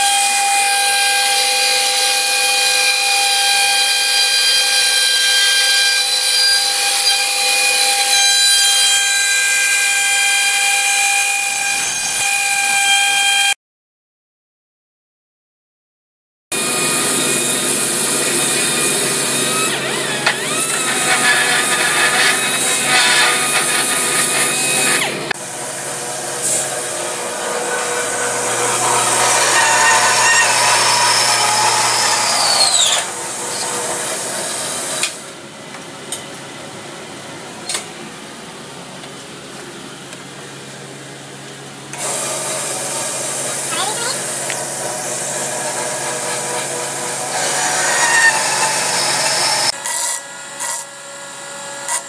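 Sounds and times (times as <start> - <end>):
band saw cutting steel: 0.0 - 13.6, 16.6 - 35.4, 42.0 - 51.0
steady hum: 25.3 - 35.6
falling whine: 25.4 - 35.3.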